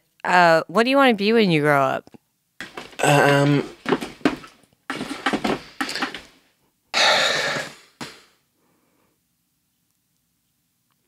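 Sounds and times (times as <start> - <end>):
man sighing: 3.0 - 3.8, 7.0 - 8.2.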